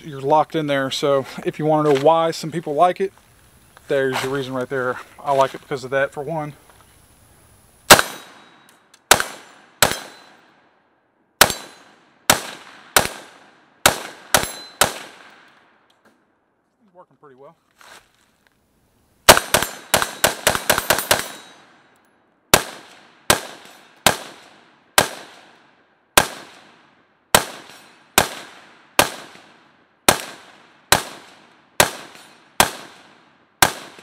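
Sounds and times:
rifle shots: 0:07.9 - 0:10.6, 0:11.4 - 0:15.6, 0:19.3 - 0:21.7, 0:22.5 - 0:34.0.

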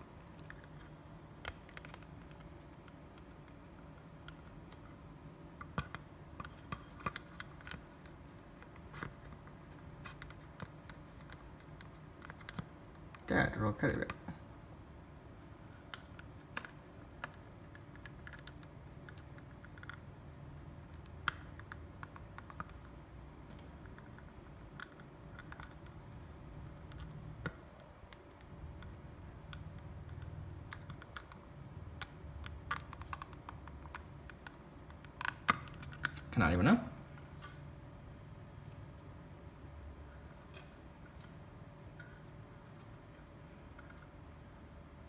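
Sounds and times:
small plastic clicks and taps: 0:20.8 - 0:31.4, 0:32.0 - 0:36.3.

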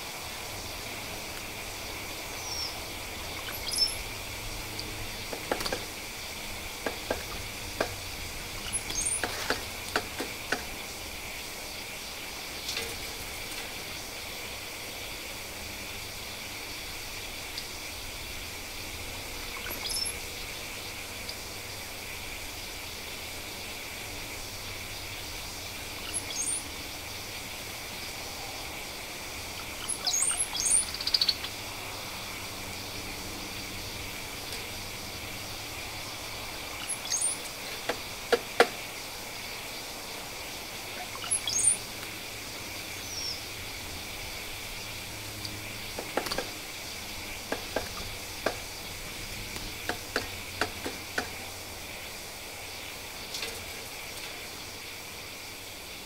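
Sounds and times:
outdoor hiss: 0:00.0 - 0:56.0
high bird chirps: 0:03.4 - 0:04.0, 0:26.0 - 0:26.7, 0:29.8 - 0:31.5, 0:36.8 - 0:37.5, 0:41.1 - 0:41.8
birds pecking on feeders: 0:04.8 - 0:06.0, 0:45.9 - 0:51.5.

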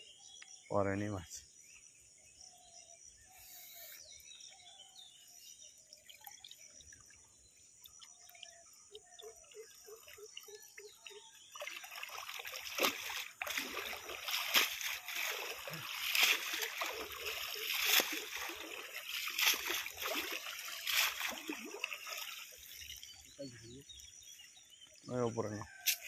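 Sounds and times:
faint trickling water: 0:04.4 - 0:25.9
pond water splashing by hand: 0:05.7 - 0:26.0.

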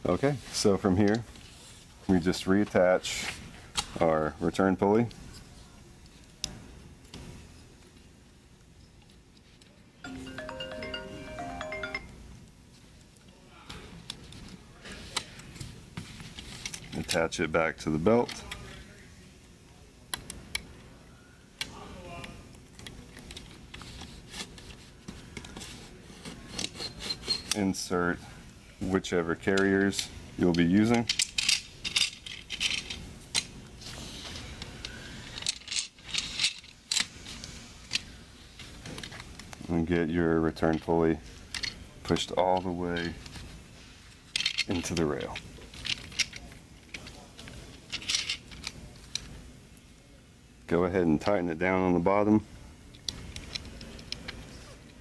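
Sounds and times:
electronic beeping melody: 0:10.1 - 0:12.2
metal rail parts clicking: 0:29.5 - 0:33.5, 0:34.8 - 0:37.2, 0:44.3 - 0:47.1, 0:47.9 - 0:49.3.

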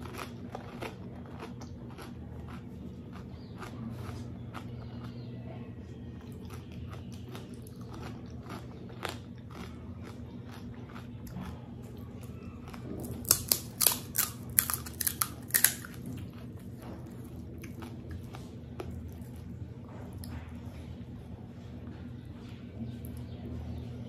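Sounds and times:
mouth chewing sounds: 0:00.0 - 0:05.3, 0:06.2 - 0:20.8
steady low hum: 0:00.0 - 0:24.0
crisp shells crunching: 0:12.3 - 0:16.6.

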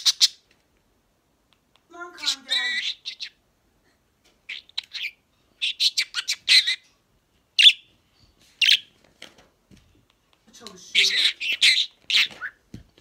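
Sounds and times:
budgerigar chirping: 0:00.0 - 0:00.4, 0:02.2 - 0:03.4, 0:04.5 - 0:06.9, 0:07.6 - 0:07.9, 0:08.6 - 0:08.9, 0:10.9 - 0:12.6.

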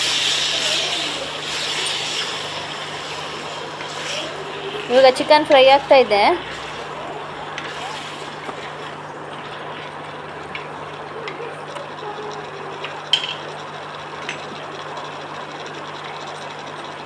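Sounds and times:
chicken sizzling in a pan: 0:00.0 - 0:04.3.

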